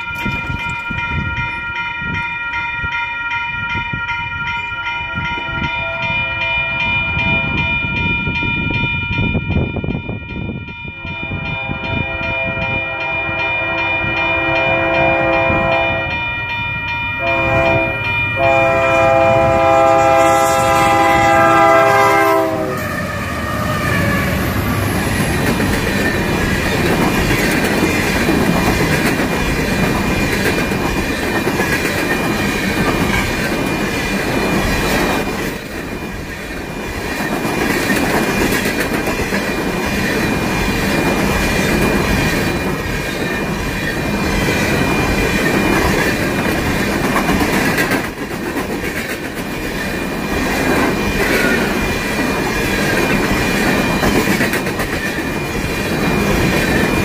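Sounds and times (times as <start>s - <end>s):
locomotive air horn: 11.1s - 16.2s, 17.2s - 24.3s.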